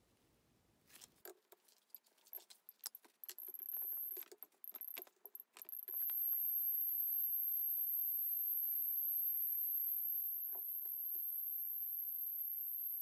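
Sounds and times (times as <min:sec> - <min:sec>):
faint high whine: 0:03.2 - 0:13.0.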